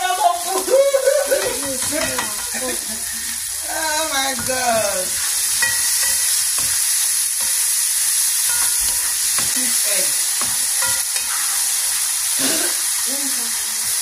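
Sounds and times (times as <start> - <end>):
food sizzling in frying pan: 0.0 - 14.0.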